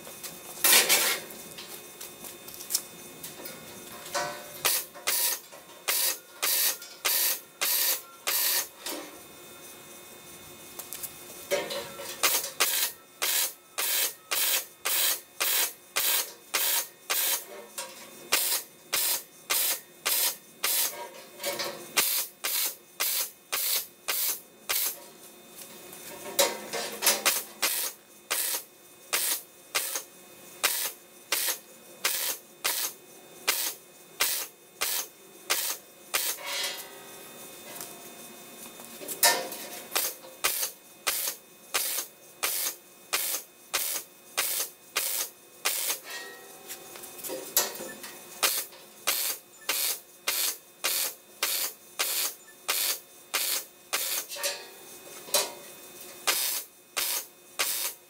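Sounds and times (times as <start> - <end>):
welding arc bursts: 4.6 - 8.7, 12.2 - 17.4, 18.3 - 21.0, 22.0 - 25.0, 27.2 - 36.4, 39.9 - 46.0, 48.4 - 54.3, 56.2 - 58.0.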